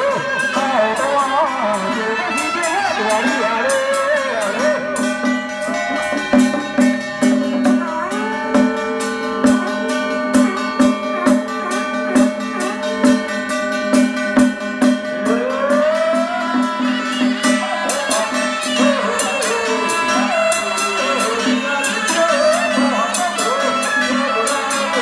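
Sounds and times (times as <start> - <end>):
drum beats: 0.0 - 25.0
gong beats: 4.8 - 23.1.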